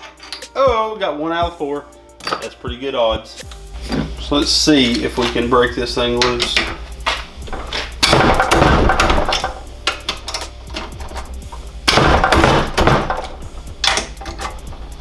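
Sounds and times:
impact tool hammering: 0:06.2 - 0:10.9, 0:11.8 - 0:14.2.

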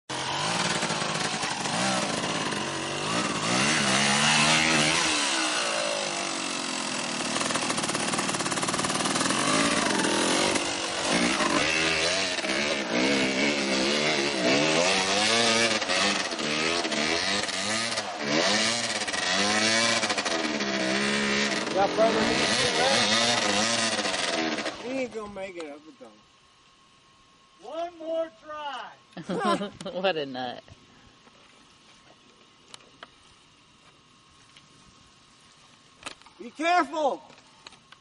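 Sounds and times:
dirt bike engine revving: 0:00.1 - 0:25.2.

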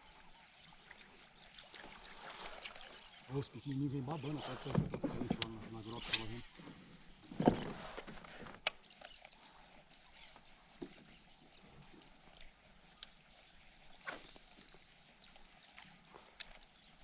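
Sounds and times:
water lapping against hull: 0:00.0 - 0:17.0.

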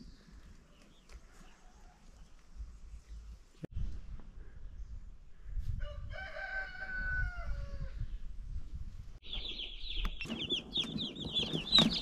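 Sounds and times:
rooster crowing: 0:05.8 - 0:08.0
baby chicks peeping: 0:09.2 - 0:12.0.

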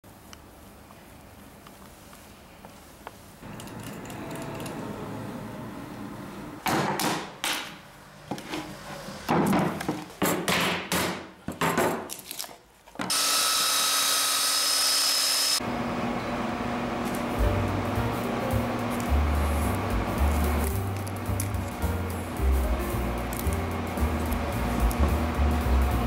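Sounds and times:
belt sander running: 0:13.1 - 0:17.0.

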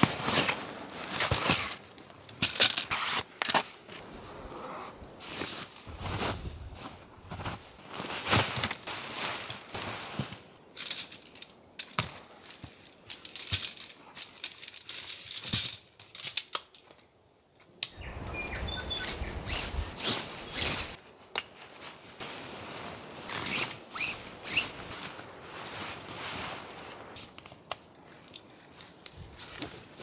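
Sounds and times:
tent poles clicking together: 0:00.0 - 0:03.8, 0:10.7 - 0:18.3, 0:19.4 - 0:21.7, 0:23.2 - 0:25.2, 0:26.9 - 0:29.9
tent fabric rustling: 0:00.0 - 0:10.7, 0:18.6 - 0:30.0
wind noise: 0:05.9 - 0:07.6, 0:18.0 - 0:21.0.

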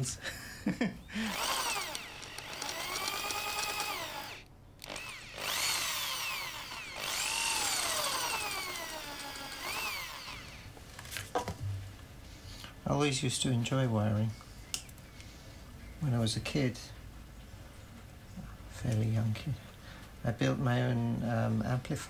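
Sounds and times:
electric drill boring metal: 0:01.2 - 0:10.7.

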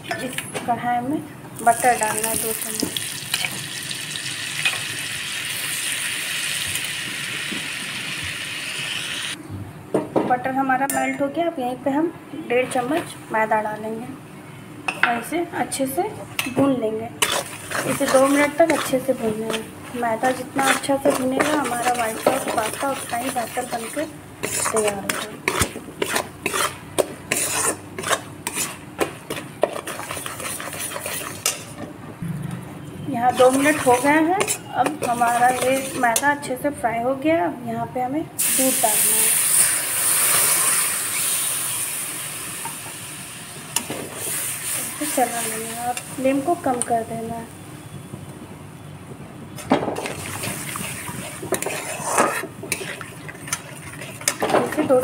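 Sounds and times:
metal spatula scraping pan: 0:17.2 - 0:31.7, 0:33.3 - 0:36.3, 0:50.0 - 0:55.0.

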